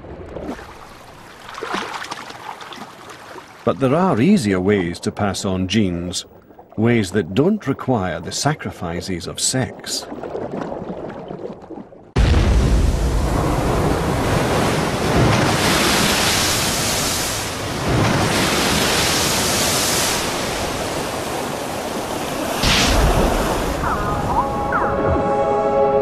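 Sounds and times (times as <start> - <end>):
surf breaking on rocks: 12.2 - 23.9.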